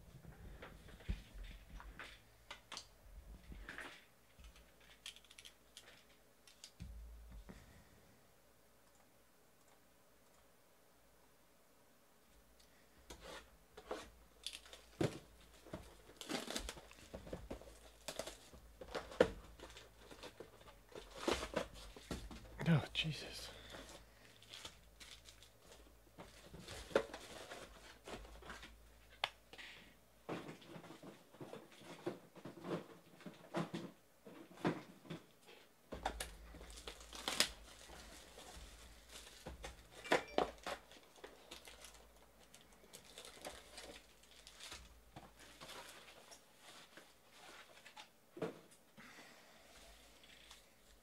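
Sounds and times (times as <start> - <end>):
foil packs crinkling: 14.4 - 22.1, 23.7 - 28.1, 36.2 - 40.0, 40.6 - 48.0, 49.8 - 51.0.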